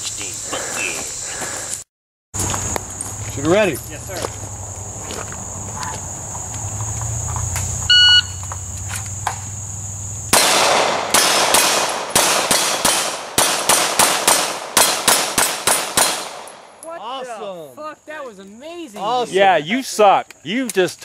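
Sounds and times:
shot timer beep: 0:07.9 - 0:08.4
pistol shots: 0:10.3 - 0:16.7.

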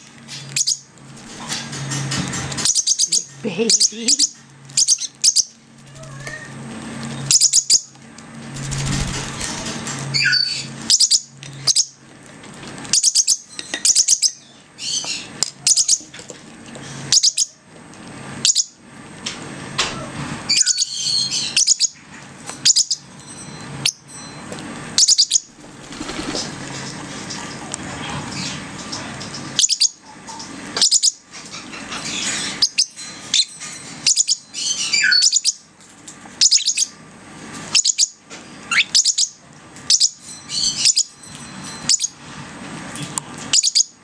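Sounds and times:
bird chicks chirping: 0:00.3 - 0:08.0, 0:08.6 - 0:12.0, 0:12.9 - 0:16.2, 0:17.1 - 0:17.6, 0:18.4 - 0:18.8, 0:20.5 - 0:35.7, 0:36.4 - 0:37.0, 0:37.7 - 0:42.2, 0:43.4 - 0:44.0.

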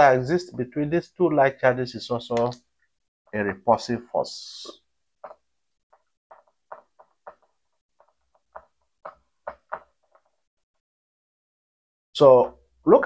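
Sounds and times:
marker squeaking on whiteboard: 0:05.2 - 0:10.5.

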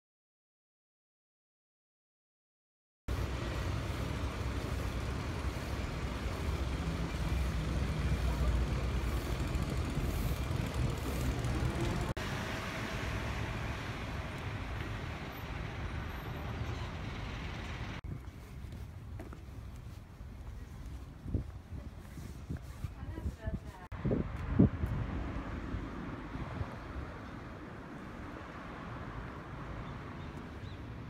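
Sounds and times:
large vehicle engine rumbling: 0:03.1 - 0:18.0
street traffic: 0:03.1 - 0:31.0.

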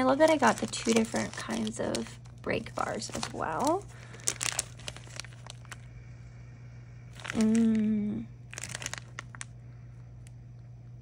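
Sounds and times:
plastic bag crinkling: 0:00.0 - 0:05.9, 0:07.1 - 0:10.3
woman humming mmm: 0:07.4 - 0:08.4.

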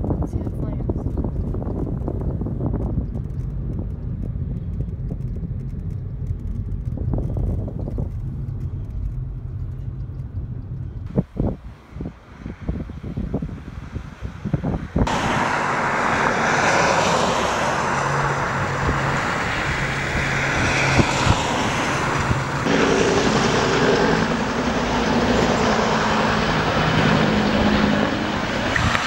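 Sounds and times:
aircraft engines droning: 0:02.2 - 0:29.0
rushing noise: 0:11.1 - 0:29.0.

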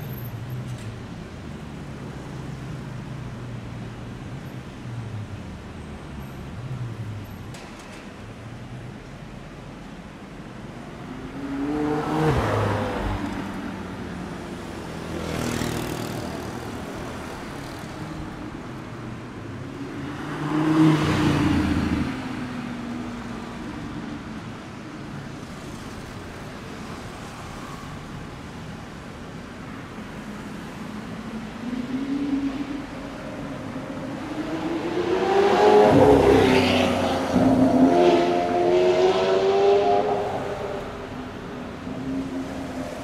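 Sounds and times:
city traffic: 0:00.0 - 0:43.0
sports car engines revving past: 0:11.1 - 0:13.8, 0:19.8 - 0:22.5, 0:31.3 - 0:43.0.

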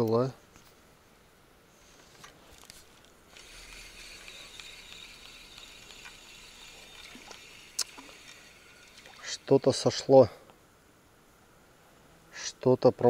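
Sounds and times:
fishing reel whirring and clicking: 0:03.3 - 0:10.2.

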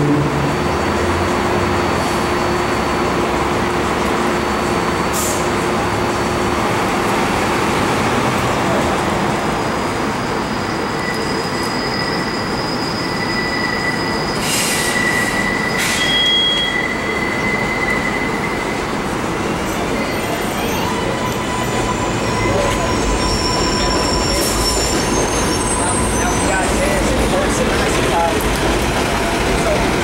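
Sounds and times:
elevated train rumbling: 0:00.0 - 0:30.0
high-pitched steel wheel squeal: 0:10.2 - 0:28.4.

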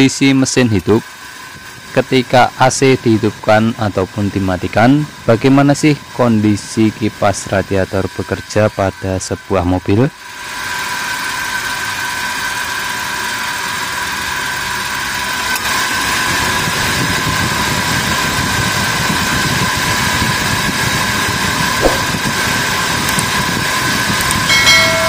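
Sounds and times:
brief click: 0:21.8 - 0:22.2
high hum: 0:21.8 - 0:22.8.

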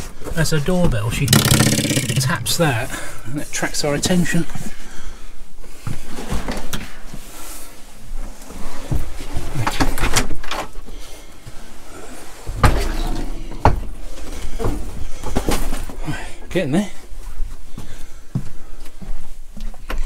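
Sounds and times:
knocks and thumps: 0:00.8 - 0:02.7, 0:12.5 - 0:15.7.

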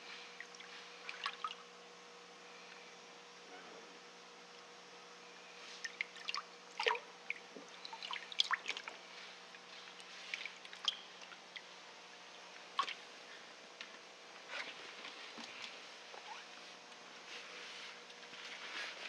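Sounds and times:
faint steady hum: 0:00.0 - 0:19.0
water splashing and dripping: 0:05.8 - 0:08.9, 0:12.8 - 0:13.0.

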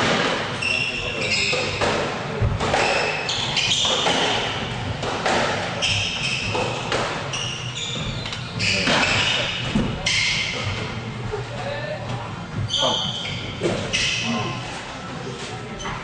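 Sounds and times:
shoes squeaking on wooden floor: 0:00.6 - 0:02.0, 0:02.8 - 0:10.9, 0:12.5 - 0:16.0
squash ball striking walls: 0:01.6 - 0:07.3
racket hitting ball: 0:01.8 - 0:07.1.

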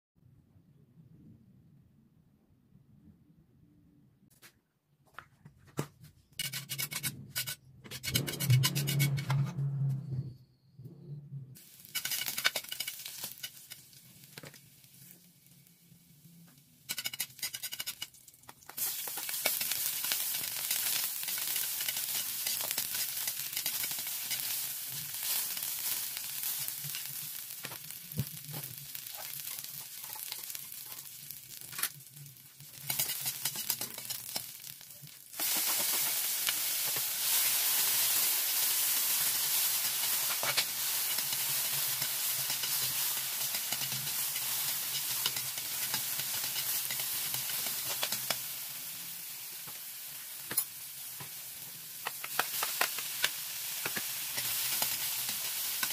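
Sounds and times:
metal utensil scraping a pan: 0:06.4 - 0:09.8, 0:11.8 - 0:13.8, 0:16.9 - 0:18.2, 0:19.3 - 0:25.5, 0:29.0 - 0:32.0, 0:32.7 - 0:34.8, 0:39.8 - 0:48.4
food sizzling in oil: 0:11.6 - 0:16.2, 0:16.8 - 0:55.9.

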